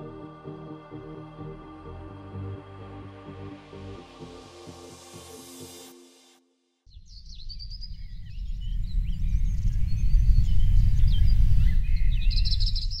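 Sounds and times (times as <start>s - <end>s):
birds chirping: 6.9s - 13.0s
loud low rumble: 7.7s - 12.7s.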